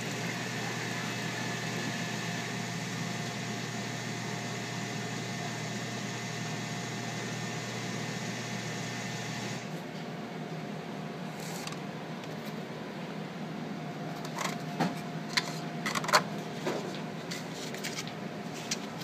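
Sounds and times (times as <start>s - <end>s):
coffee machine hiss: 0.0s - 9.7s
coffee machine humming: 0.0s - 10.4s.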